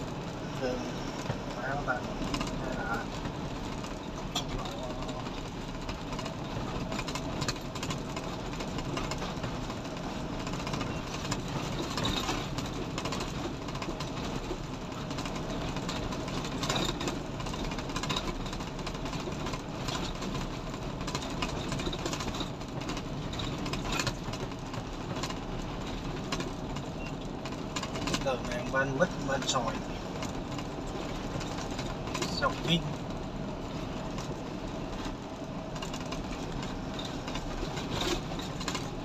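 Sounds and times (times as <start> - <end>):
truck engine running: 0.0 - 39.0
tyre and road noise: 0.0 - 39.0.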